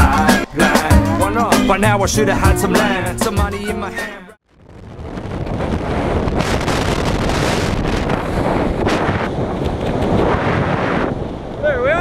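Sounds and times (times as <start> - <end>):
wind blasting on microphone: 4.5 - 12.0.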